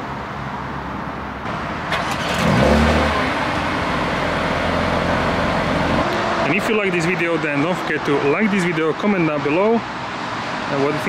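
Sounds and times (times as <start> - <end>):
car engine starting and idling: 1.5 - 8.2.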